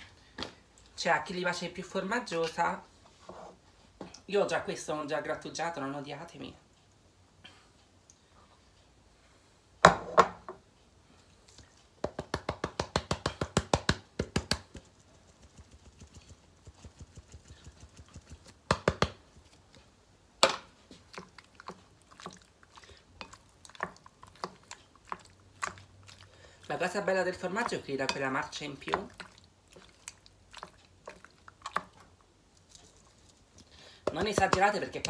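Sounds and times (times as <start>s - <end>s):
cheese canister tapping: 34.0s - 35.0s.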